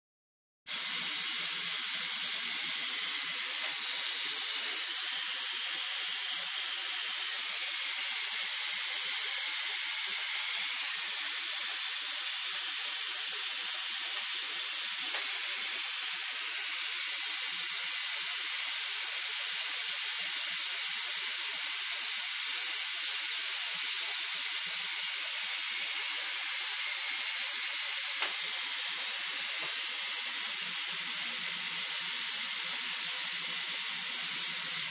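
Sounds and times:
steam hissing from pressure valve: 0.7 - 34.9.

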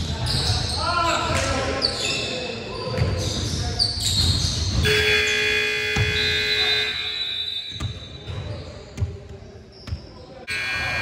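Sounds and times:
basketball bouncing on court: 2.9 - 6.7, 7.7 - 11.0
scoreboard buzzer: 10.5 - 11.0.

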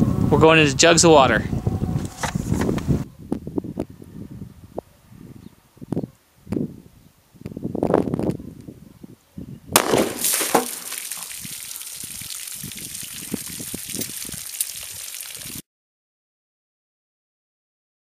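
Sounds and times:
handgun shot: 9.8 - 11.0
water splashing onto ground: 9.8 - 15.6.

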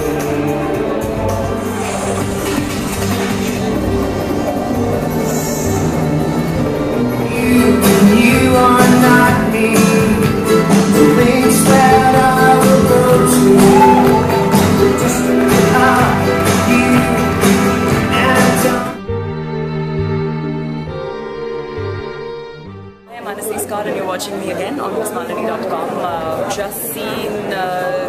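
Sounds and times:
music with steady beat: 0.0 - 23.0
person singing: 5.0 - 19.3.

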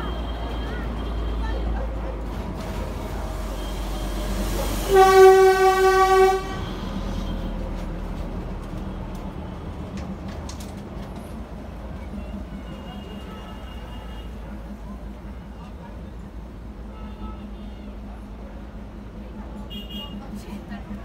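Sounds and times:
train rumbling: 0.0 - 21.0
train horn blast: 3.4 - 7.8.

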